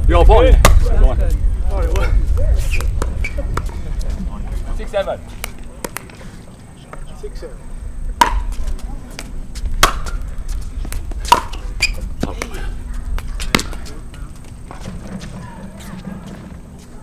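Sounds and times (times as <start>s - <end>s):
paddles hitting plastic ball: 5.4s - 6.2s, 8.2s - 11.6s, 12.2s - 15.0s.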